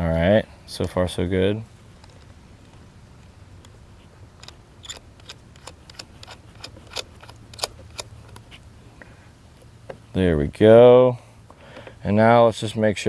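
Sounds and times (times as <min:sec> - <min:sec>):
wire terminal clicking on battery post: 0:04.4 - 0:08.5.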